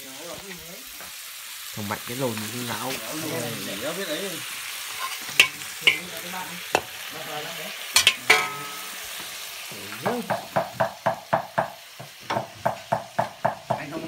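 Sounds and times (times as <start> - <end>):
eel sizzling in a wok: 0.0 - 14.0
ladle clanking against wok: 4.9 - 7.0, 7.9 - 9.0.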